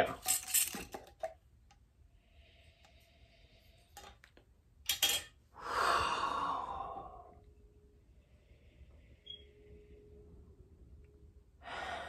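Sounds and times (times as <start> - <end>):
person sighing: 5.6 - 7.4.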